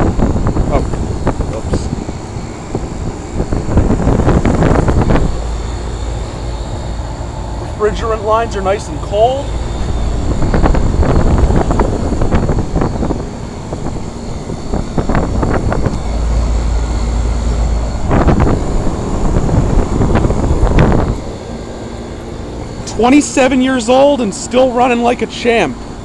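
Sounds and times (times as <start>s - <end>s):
compressor hum: 0.0s - 26.0s
condenser fan rushing: 0.0s - 26.0s
low rumbling surges: 0.0s - 26.0s.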